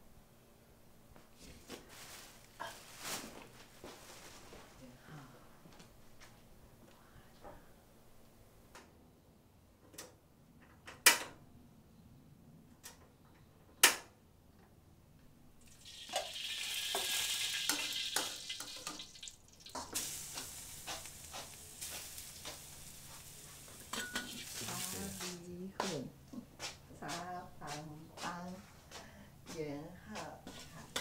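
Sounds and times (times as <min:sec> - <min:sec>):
food sizzling in a hot pan: 0:15.6 - 0:25.4
utensil clinking while stirring: 0:19.7 - 0:24.9.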